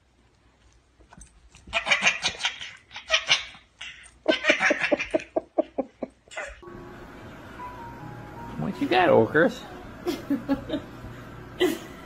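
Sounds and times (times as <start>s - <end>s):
toddler laughing: 4.2s - 5.7s.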